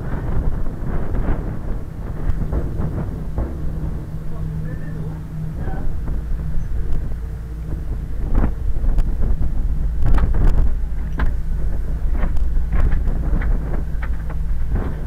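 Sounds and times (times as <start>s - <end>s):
ship engine droning: 0.0s - 15.0s
wind buffeting microphone: 0.0s - 15.0s
sharp clicks and knocks: 5.9s - 15.0s.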